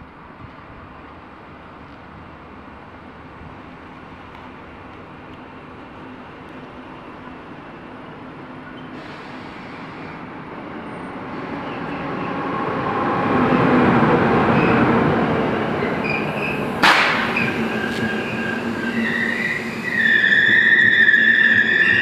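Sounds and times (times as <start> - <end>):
locomotive approaching: 0.0 - 22.0
train wheels on rails: 0.0 - 22.0
wheels squealing: 14.4 - 22.0
sharp crack: 16.8 - 18.6.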